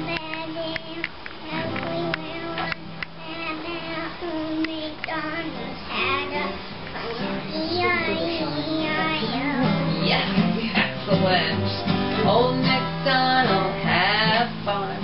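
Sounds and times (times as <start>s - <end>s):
child singing: 0.0s - 10.1s
acoustic guitar: 0.0s - 15.0s
woman singing: 0.0s - 15.0s.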